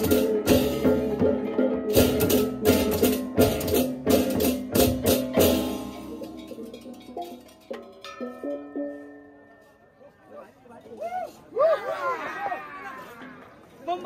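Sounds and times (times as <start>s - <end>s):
drums: 0.0s - 9.8s.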